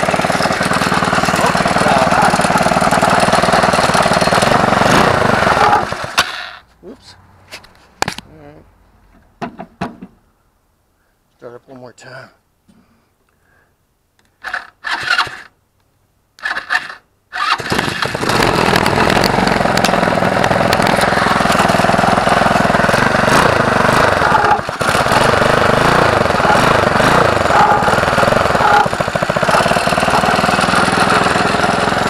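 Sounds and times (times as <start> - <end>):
small engine cranking: 0.0 - 6.6, 14.4 - 15.5, 16.4 - 32.0
small engine running: 0.0 - 6.6, 16.4 - 32.0.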